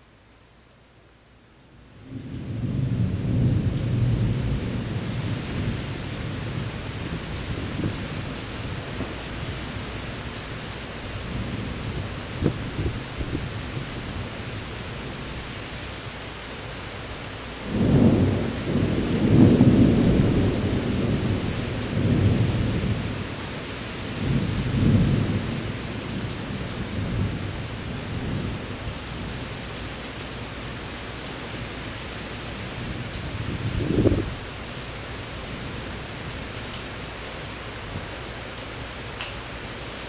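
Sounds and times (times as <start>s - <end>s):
steady rain: 0.0s - 40.0s
thunder rumbling: 2.0s - 10.2s, 11.0s - 15.5s, 17.6s - 29.4s, 32.6s - 34.5s.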